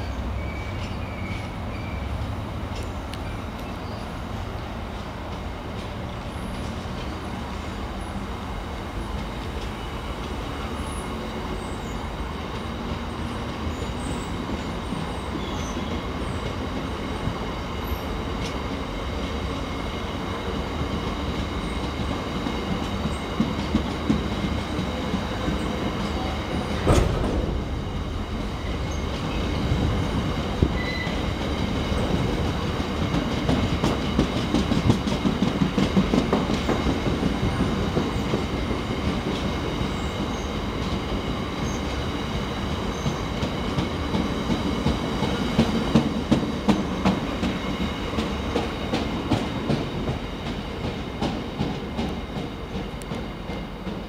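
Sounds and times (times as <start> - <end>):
train wheels clattering over rail joints: 20.4 - 54.0
sharp metallic clank: 26.7 - 29.6
faint high wheel squeal: 30.7 - 31.3.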